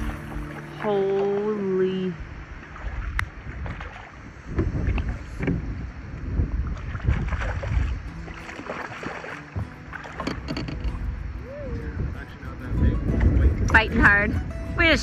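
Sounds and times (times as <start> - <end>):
wind rumbling on microphone: 0.0 - 15.0
fish thrashing and splashing: 6.7 - 10.9.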